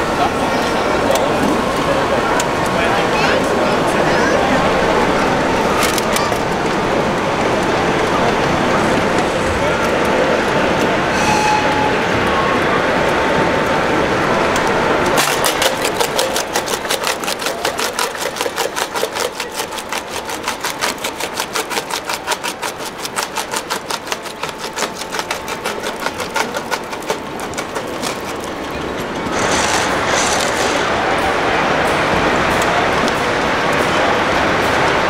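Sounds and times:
model jaw crusher clattering: 0:15.2 - 0:28.8.

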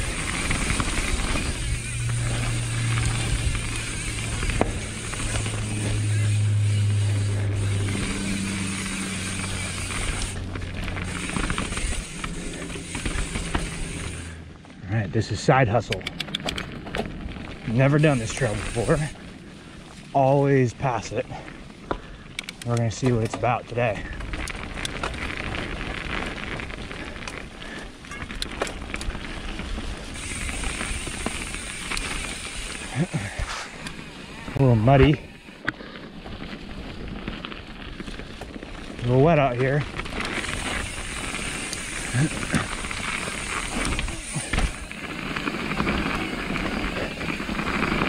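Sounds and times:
freewheel hub ratcheting: 0:00.0 - 0:14.4, 0:15.8 - 0:35.8, 0:36.4 - 0:48.0
bike tyres humming: 0:00.0 - 0:48.0.

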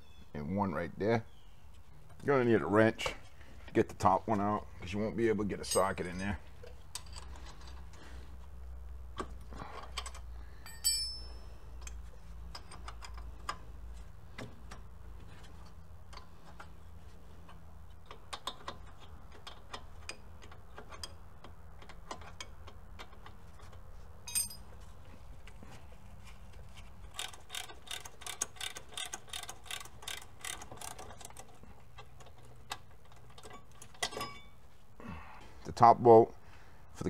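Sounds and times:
ringing metal clink: 0:05.6 - 0:06.3, 0:10.6 - 0:11.6, 0:24.3 - 0:24.7, 0:34.0 - 0:34.6
wrench clicking on metal: 0:27.1 - 0:34.1.

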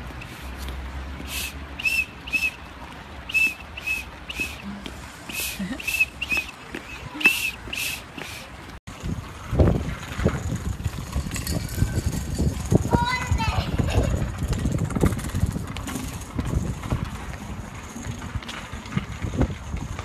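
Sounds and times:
whistle short toots: 0:01.3 - 0:02.6, 0:03.3 - 0:04.7, 0:05.3 - 0:08.4
scooter wheels rolling over bricks: 0:08.6 - 0:20.0.

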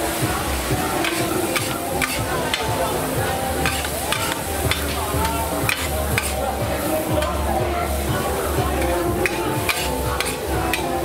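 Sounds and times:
noodles sizzling in a pan: 0:00.0 - 0:11.0
utensil scraping metal pan: 0:00.8 - 0:06.4.

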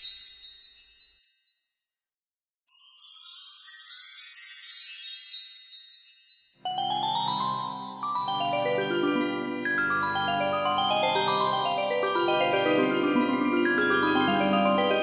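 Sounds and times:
magic wand sparkle chimes: 0:00.0 - 0:01.6, 0:02.7 - 0:08.6
glockenspiel-like mallet melody: 0:02.7 - 0:15.0.

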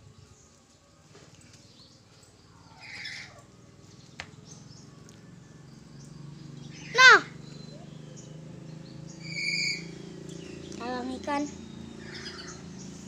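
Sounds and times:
cockatoo squawk: 0:02.7 - 0:03.5, 0:09.2 - 0:09.9.

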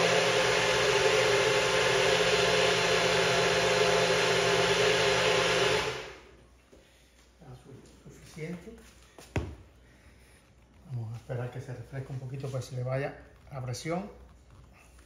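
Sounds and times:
electric blender running: 0:00.0 - 0:06.3.

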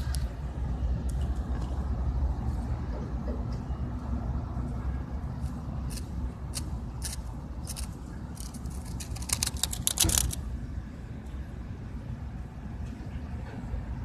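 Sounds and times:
cicada clicking and rattling: 0:06.6 - 0:10.4.

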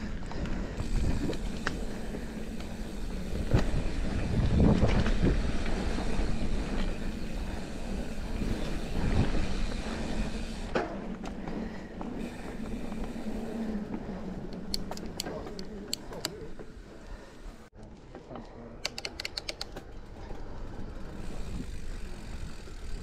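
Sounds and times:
bike knocking and rattling: 0:00.0 - 0:16.9
bike tyres rolling over dirt: 0:00.0 - 0:18.4, 0:19.8 - 0:23.0.

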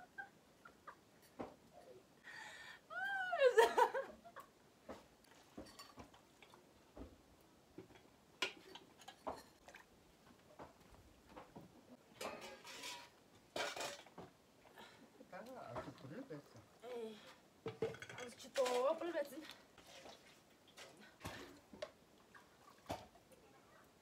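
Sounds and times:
woman laughing: 0:02.9 - 0:04.5
metal cups and plate clinking: 0:05.5 - 0:06.6, 0:07.9 - 0:09.8, 0:12.1 - 0:14.2, 0:17.6 - 0:19.0.

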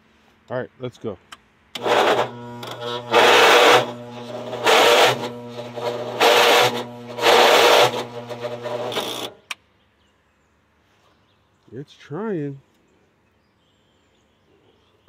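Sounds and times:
electric starter cranking engine: 0:01.8 - 0:09.5.

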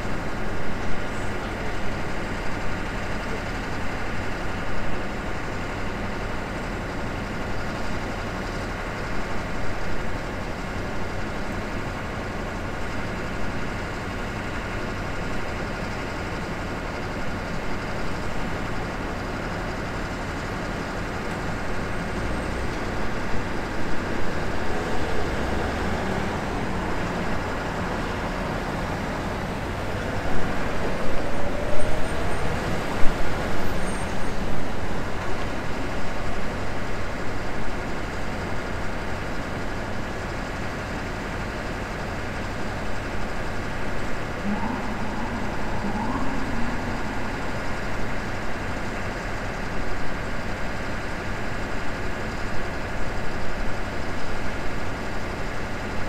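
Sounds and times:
city traffic hum: 0:00.0 - 0:56.0
vehicle engine revving: 0:24.1 - 0:35.0.

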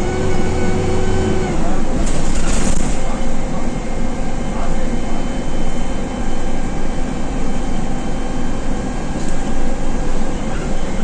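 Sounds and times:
bus diesel engine running: 0:00.0 - 0:11.0
road noise: 0:00.0 - 0:11.0.

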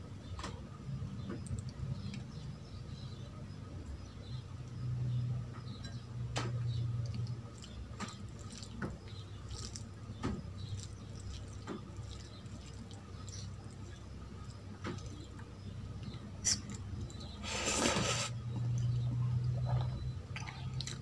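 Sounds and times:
low steady hum: 0:00.0 - 0:21.0
rice squishing in fingers: 0:07.0 - 0:15.4.

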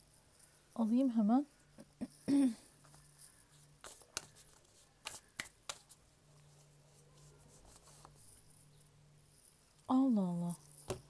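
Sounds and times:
cards rustling: 0:02.8 - 0:08.6
card flicks and taps: 0:05.0 - 0:05.9.

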